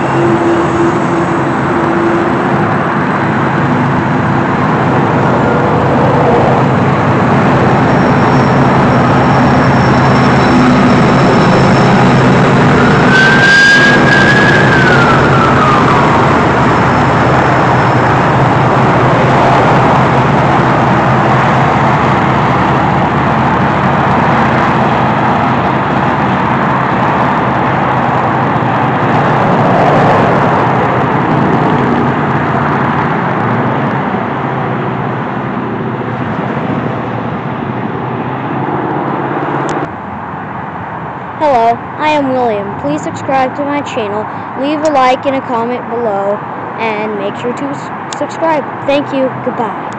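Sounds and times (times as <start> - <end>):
train rumbling across bridge: 0.0 - 44.6
locomotive engine drone: 0.0 - 49.9
high squeal: 7.6 - 18.2.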